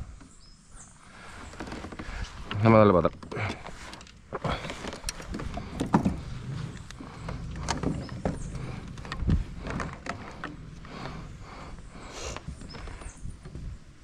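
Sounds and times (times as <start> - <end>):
handling knocks and clicks: 1.6 - 11.1
low rumble: 5.2 - 13.8.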